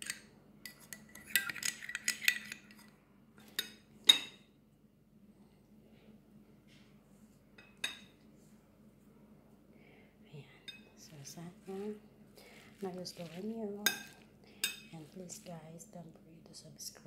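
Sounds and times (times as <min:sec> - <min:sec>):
metal spoon clinking on bowl: 0:00.0 - 0:02.9, 0:13.3 - 0:15.0.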